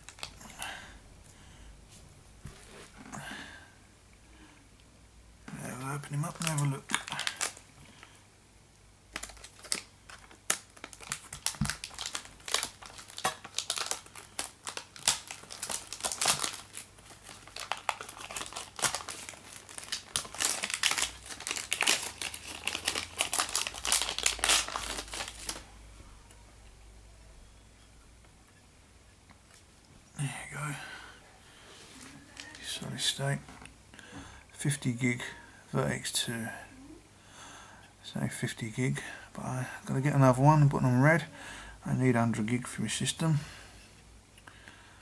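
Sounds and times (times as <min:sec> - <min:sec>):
plastic bag crinkling: 0:00.0 - 0:00.4, 0:05.7 - 0:08.1, 0:09.1 - 0:25.7.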